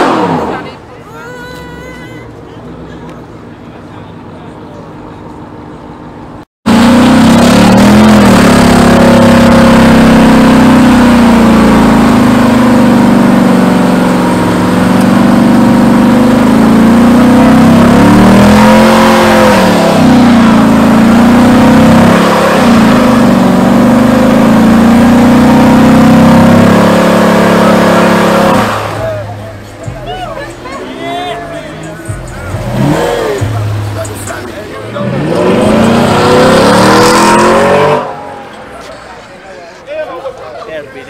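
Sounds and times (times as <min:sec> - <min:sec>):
car engine revving high: 0:00.0 - 0:00.8, 0:06.7 - 0:38.6.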